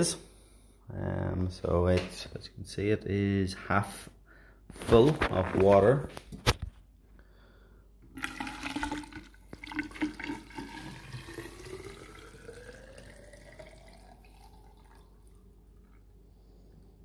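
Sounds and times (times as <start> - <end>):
water pouring into plastic bottle: 8.1 - 16.2.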